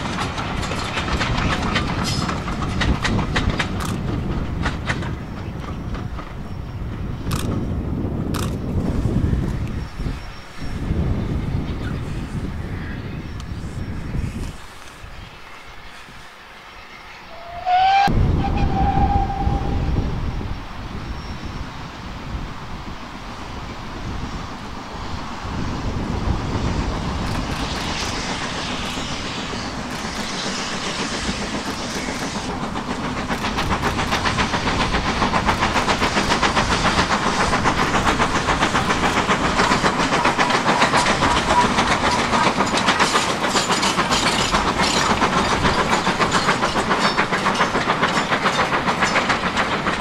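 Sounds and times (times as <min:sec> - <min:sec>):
wheels clattering over rails: 0:00.0 - 0:06.3, 0:31.2 - 0:50.0
steam locomotive exhaust: 0:08.4 - 0:50.0.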